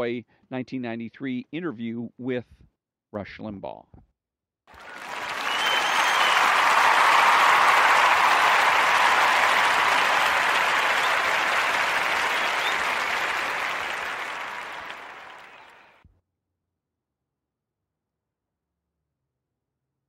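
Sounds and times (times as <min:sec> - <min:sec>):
crowd applause: 0:04.7 - 0:16.0.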